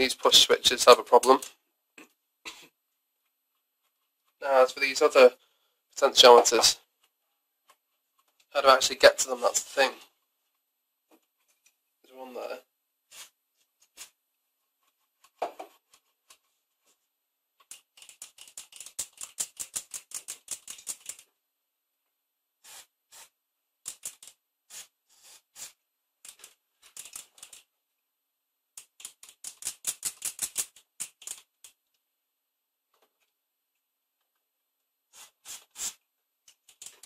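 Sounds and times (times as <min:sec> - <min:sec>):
rapid sharp clicks: 0:17.6 - 0:21.3, 0:28.8 - 0:31.8.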